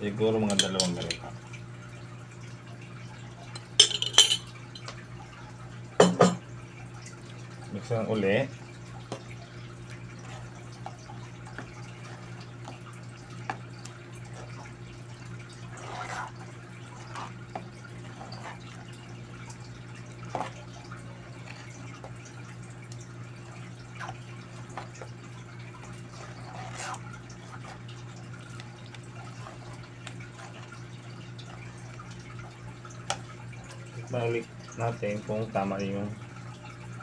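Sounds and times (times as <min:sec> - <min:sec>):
spoon stirring thick porridge: 0:10.1 - 0:14.8, 0:15.4 - 0:19.4, 0:20.2 - 0:22.2, 0:24.0 - 0:32.2
spoon scraping a pan: 0:15.6 - 0:18.8, 0:26.0 - 0:27.9.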